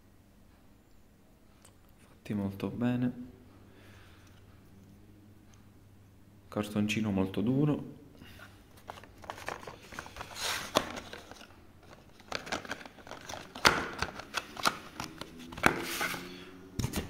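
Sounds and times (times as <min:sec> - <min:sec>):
cardboard rustling and crinkling: 0:08.8 - 0:17.0.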